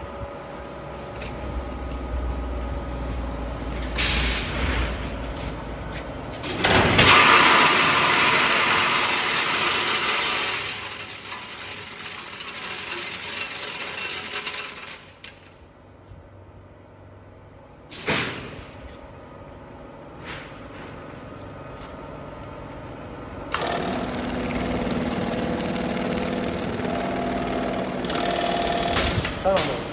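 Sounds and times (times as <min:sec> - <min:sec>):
pneumatic clamp hissing shut: 0:17.9 - 0:18.6.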